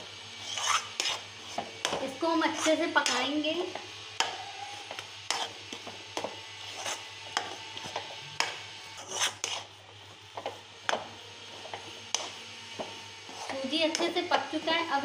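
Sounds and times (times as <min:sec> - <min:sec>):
metal spoon scraping metal pan: 0:00.4 - 0:03.4, 0:04.2 - 0:05.8, 0:06.6 - 0:08.0, 0:09.0 - 0:09.8.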